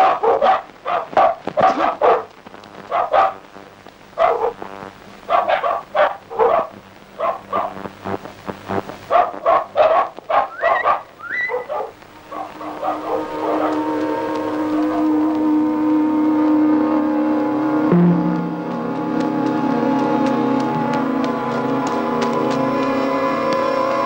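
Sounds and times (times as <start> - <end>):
dog yelping: 0.0 - 2.3, 2.9 - 3.4, 4.2 - 4.6, 5.3 - 7.8, 9.1 - 13.8
dog barking: 0.0 - 3.4, 4.2 - 4.7, 5.3 - 7.9, 9.1 - 13.9, 14.8 - 15.4.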